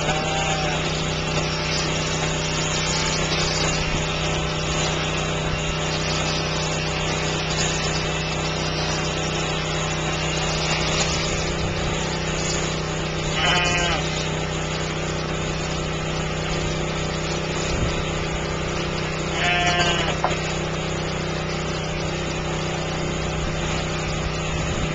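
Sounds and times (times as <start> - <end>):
sheep bleating: 0.0 - 1.1, 13.3 - 14.2, 19.3 - 20.3
electric shears humming: 0.0 - 24.9.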